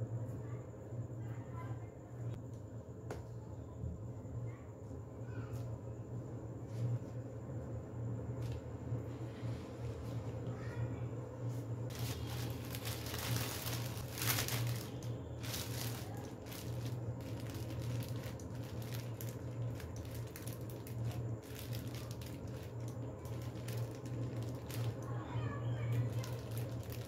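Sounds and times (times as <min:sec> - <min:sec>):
steady low hum: 0:00.0 - 0:27.0
plastic sheet crinkling: 0:11.9 - 0:27.0.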